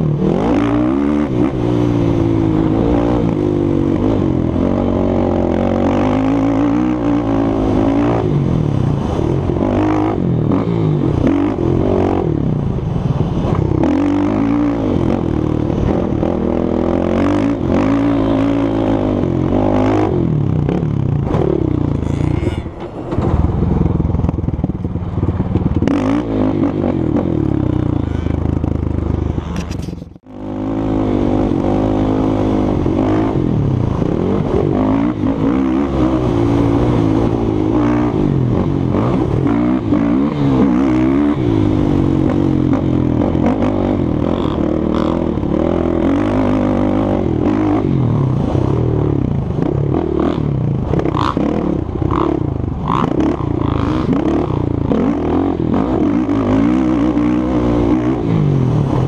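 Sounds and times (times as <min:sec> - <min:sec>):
quad bike engine revving: 0:00.0 - 0:59.0.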